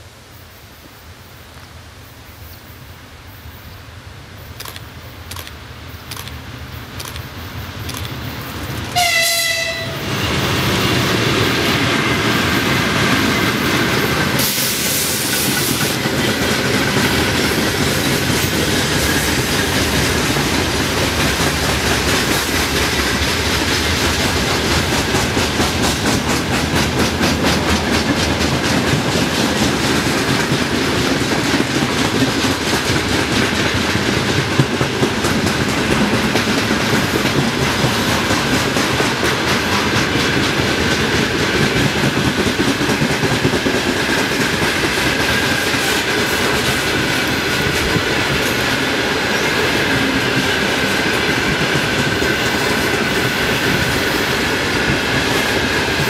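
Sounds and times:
locomotive horn blast: 0:08.9 - 0:10.2.

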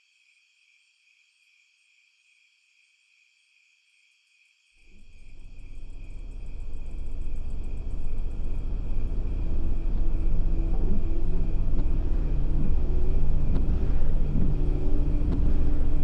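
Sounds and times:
crickets chirping: 0:00.0 - 0:16.0
car engine rumble: 0:05.8 - 0:16.0.

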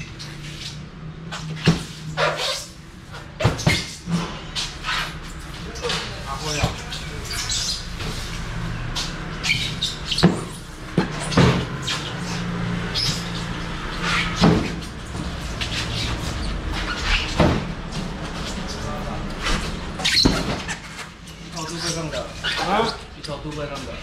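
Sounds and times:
car engine and road drone: 0:07.8 - 0:20.0.

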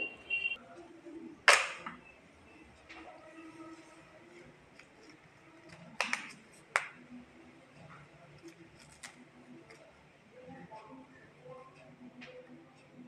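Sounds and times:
florets snapping off by hand: 0:05.7 - 0:06.9.

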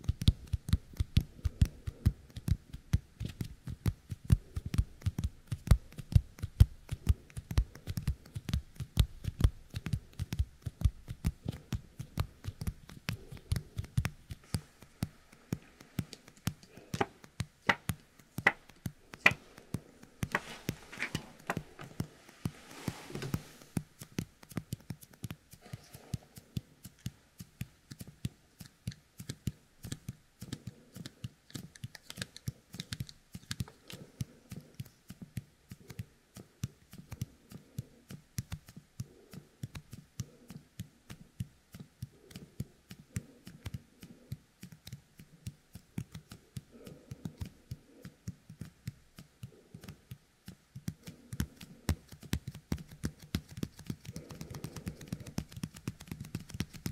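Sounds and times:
sticky clicks and crackles: 0:23.3 - 0:56.9.

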